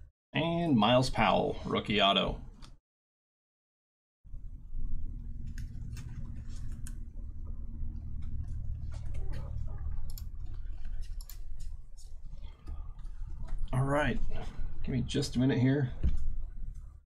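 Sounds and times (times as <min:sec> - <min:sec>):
steady low hum: 0:04.3 - 0:17.0.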